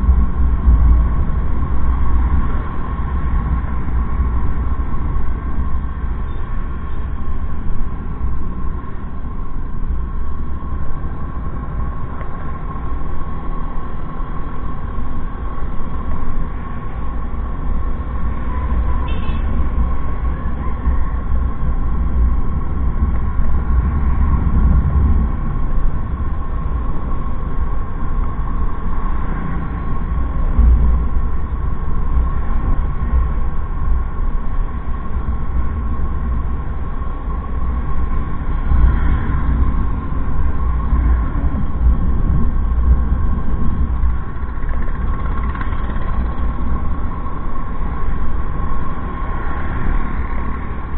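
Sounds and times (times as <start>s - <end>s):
faint steady whine: 0.0s - 50.9s
motorbike engine and road noise: 0.0s - 50.9s
wind buffeting microphone: 19.7s - 50.9s.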